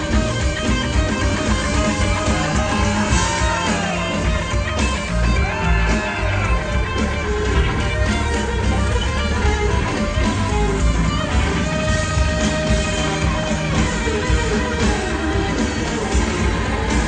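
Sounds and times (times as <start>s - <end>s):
drums: 0.0s - 17.0s
electric guitar lead line: 0.0s - 17.0s.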